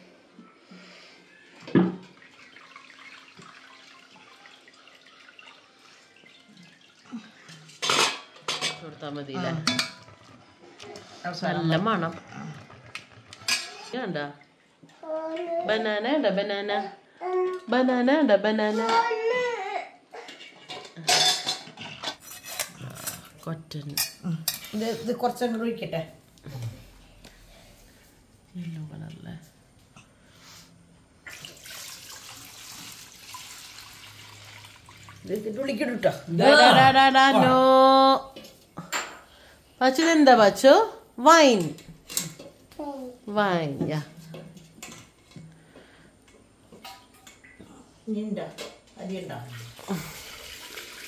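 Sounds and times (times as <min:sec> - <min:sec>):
liquid trickling and dripping: 0:02.0 - 0:07.9, 0:31.2 - 0:36.1
utensils and pots clinking: 0:04.7 - 0:14.0, 0:20.2 - 0:25.7, 0:41.5 - 0:42.7, 0:44.1 - 0:47.6.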